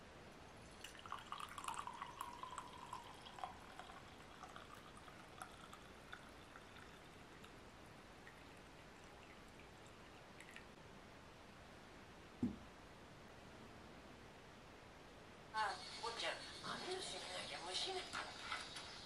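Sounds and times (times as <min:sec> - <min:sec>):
tea pouring into glass cup: 0:00.6 - 0:07.6, 0:08.2 - 0:10.7
trickling and drips: 0:00.6 - 0:10.8.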